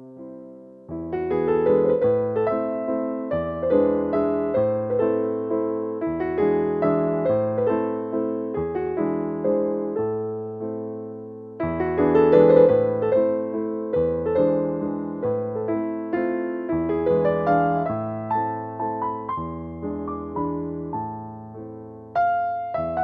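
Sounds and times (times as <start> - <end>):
gentle piano melody: 0.0 - 23.0.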